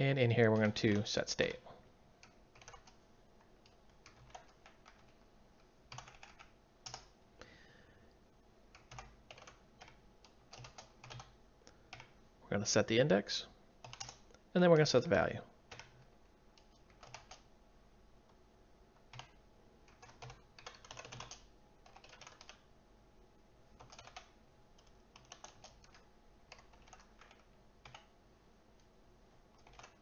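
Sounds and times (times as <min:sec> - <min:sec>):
computer keyboard typing: 0:02.2 - 0:03.0, 0:03.6 - 0:05.2, 0:05.9 - 0:07.1, 0:08.7 - 0:12.2, 0:13.8 - 0:14.4, 0:15.7 - 0:17.5, 0:19.0 - 0:22.6, 0:23.7 - 0:28.1, 0:29.5 - 0:30.0.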